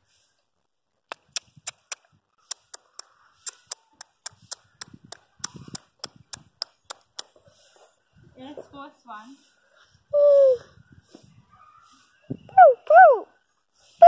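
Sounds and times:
sharp clicks or snaps: 0:01.1 - 0:07.3.

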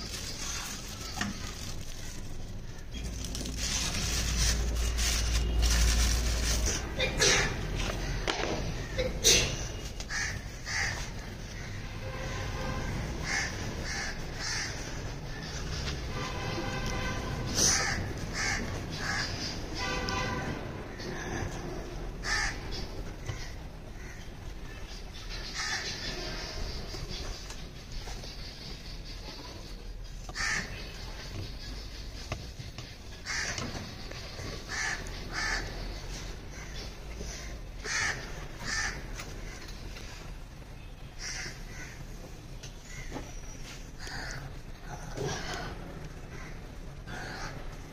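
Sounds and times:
crows cawing: 0:07.2 - 0:11.9, 0:13.2 - 0:15.9, 0:17.6 - 0:19.6, 0:22.2 - 0:24.4, 0:25.3 - 0:26.6, 0:30.3 - 0:40.2, 0:41.2 - 0:42.2, 0:42.8 - 0:43.4, 0:44.0 - 0:47.9.

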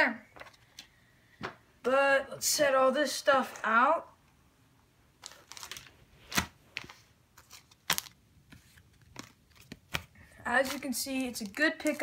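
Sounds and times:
plastic packaging crinkling: 0:05.2 - 0:12.0.

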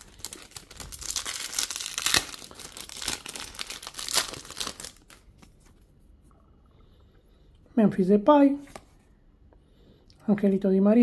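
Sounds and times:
foil wrapper tearing and crinkling: 0:00.0 - 0:05.5.

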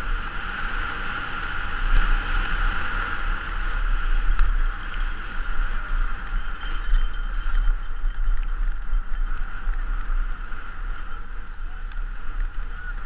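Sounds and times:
wind buffeting: 0:00.0 - 0:13.0
bike rattling over bumps: 0:03.0 - 0:13.0.

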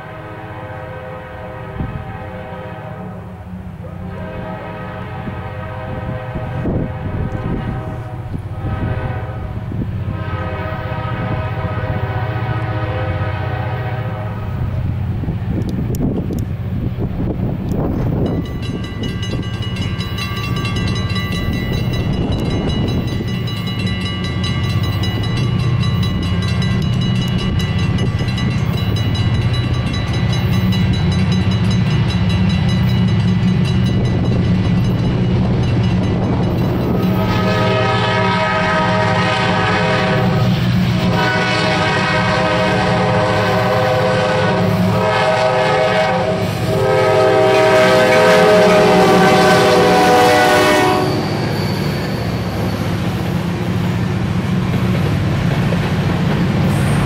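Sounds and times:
locomotive air horn blasts: 0:00.0 - 0:14.6, 0:36.8 - 0:51.9
diesel locomotive engines rumbling: 0:00.0 - 0:57.0.

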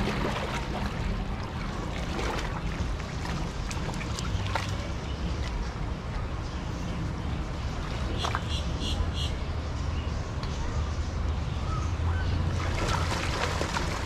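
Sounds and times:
low steady rumble: 0:00.0 - 0:14.0
water splashing and sloshing: 0:00.0 - 0:14.0.

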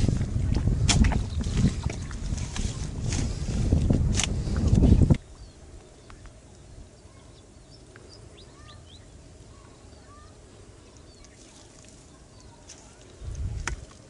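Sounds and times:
small birds chirping: 0:01.0 - 0:02.8, 0:04.4 - 0:14.0.

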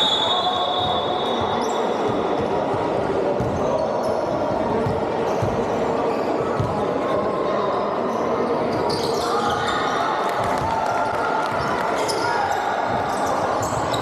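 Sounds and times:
high whistle tone: 0:00.0 - 0:01.5
murmur of voices in echoing hall: 0:00.0 - 0:14.0.

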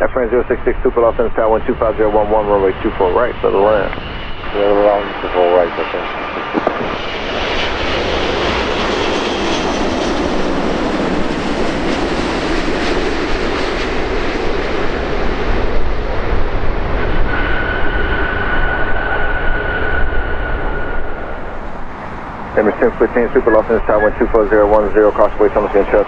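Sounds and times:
high steady whine: 0:00.0 - 0:08.9, 0:15.3 - 0:26.0
jet engines roaring: 0:00.0 - 0:26.0.

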